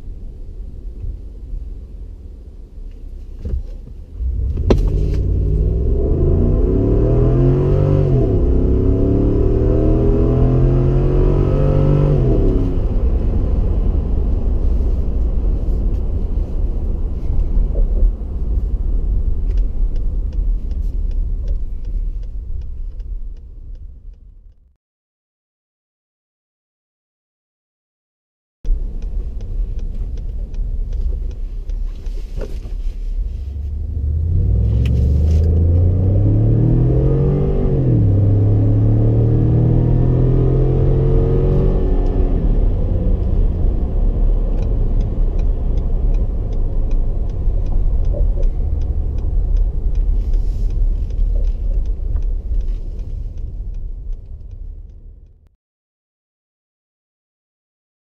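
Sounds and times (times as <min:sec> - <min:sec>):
road noise: 0:00.0 - 0:24.6, 0:28.7 - 0:55.5
truck engine accelerating: 0:04.2 - 0:21.6, 0:33.2 - 0:55.5.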